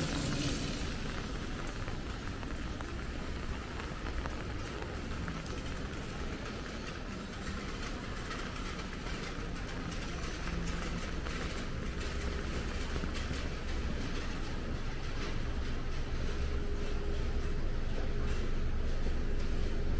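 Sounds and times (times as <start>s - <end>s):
rain falling on street: 0.0s - 15.9s
traffic rumble: 0.0s - 19.9s.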